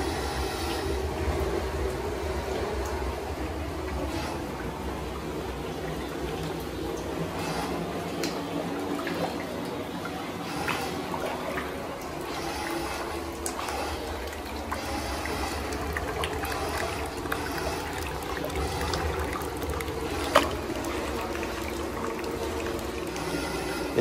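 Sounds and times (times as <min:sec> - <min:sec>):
water trickling into a tub: 0:00.0 - 0:24.0.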